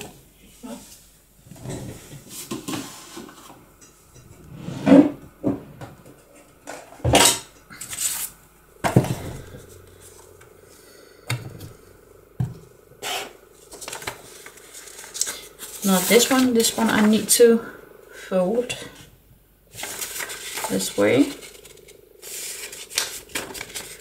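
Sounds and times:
paper sheets rustling: 0:13.0 - 0:17.3, 0:19.7 - 0:24.0.

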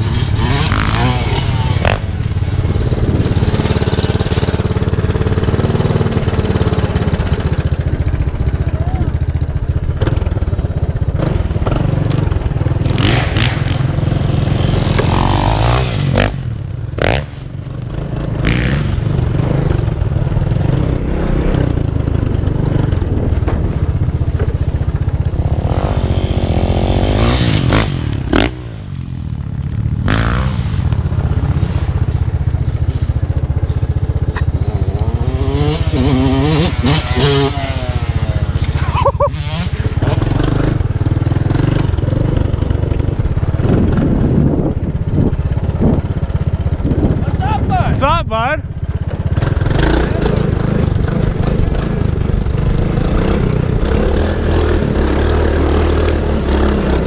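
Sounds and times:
motorcycle engines revving: 0:00.0 - 0:57.0.

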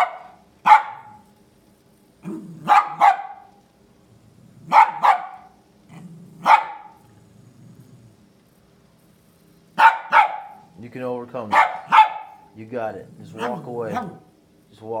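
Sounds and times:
small dog barking: 0:00.0 - 0:01.3, 0:02.2 - 0:03.6, 0:04.6 - 0:05.6, 0:06.4 - 0:07.0, 0:09.8 - 0:10.7, 0:11.5 - 0:12.6, 0:13.2 - 0:14.3.

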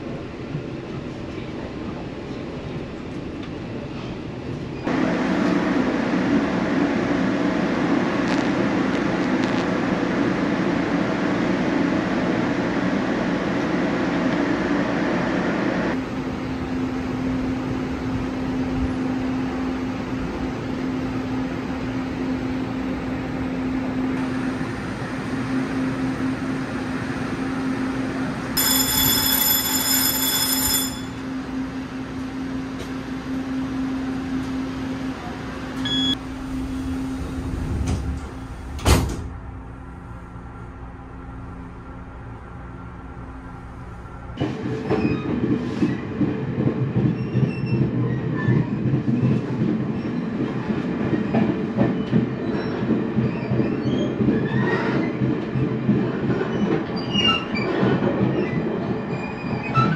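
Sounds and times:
train rumbling on rails: 0:00.0 - 0:59.9.

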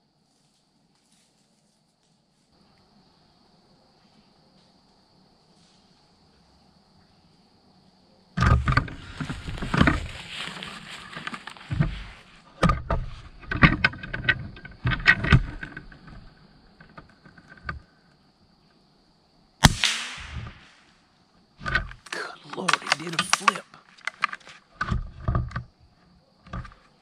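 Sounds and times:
gear handling knocks and scrapes: 0:08.4 - 0:17.8, 0:21.6 - 0:25.7, 0:26.4 - 0:26.9.

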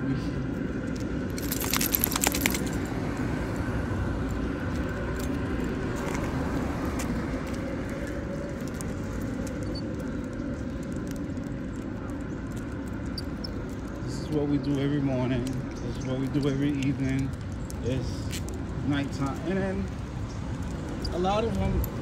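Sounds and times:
low rumble of street traffic: 0:00.0 - 0:22.0
metallic jingling: 0:01.4 - 0:03.0.

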